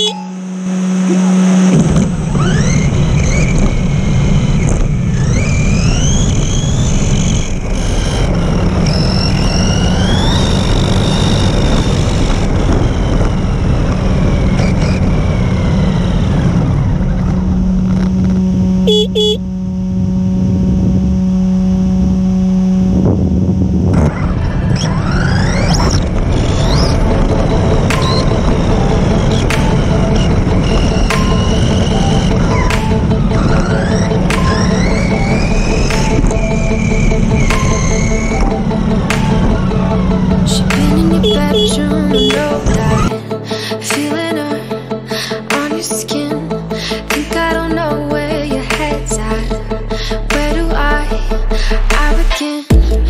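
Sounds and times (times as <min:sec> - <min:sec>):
electric motor whining: 0:00.0 - 0:43.2
steady low hum: 0:00.0 - 0:43.8
tyres rumbling on tarmac: 0:23.7 - 0:43.2.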